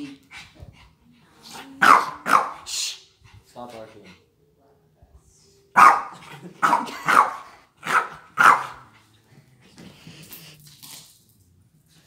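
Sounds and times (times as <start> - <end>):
small dog barking: 1.8 - 2.7, 5.8 - 8.8.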